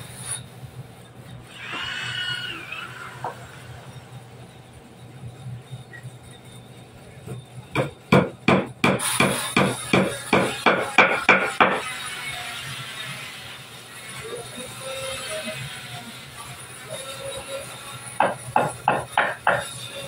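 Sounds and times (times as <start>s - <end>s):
hammer striking wood: 7.8s - 11.8s, 18.2s - 19.6s.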